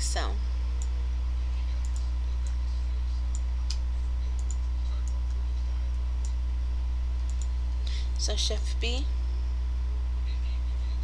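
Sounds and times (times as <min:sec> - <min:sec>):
loud low electrical hum: 0:00.0 - 0:11.0
computer mouse clicking: 0:04.4 - 0:05.3, 0:07.2 - 0:07.5.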